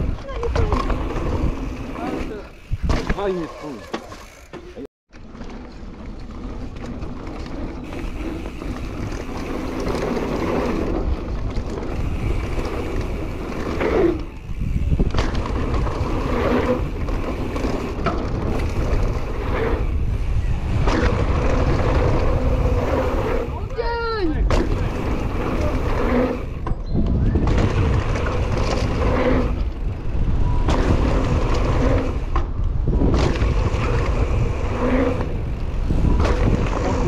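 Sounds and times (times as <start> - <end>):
wind buffeting microphone: 0.0 - 3.3, 7.8 - 37.0
bike knocking and rattling: 0.0 - 37.0
bike tyres rolling on dirt: 0.0 - 37.0.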